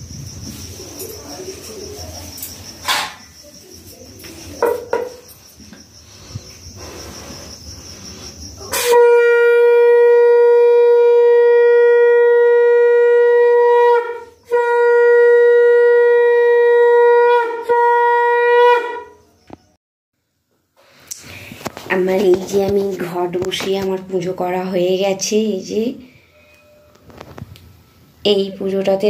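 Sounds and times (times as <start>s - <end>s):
conch shell horn blasts: 8.7s - 19.2s.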